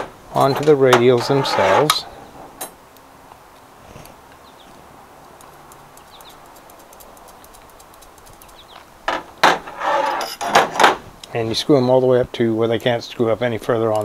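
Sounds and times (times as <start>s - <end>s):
faint ticking: 2.9s - 8.9s.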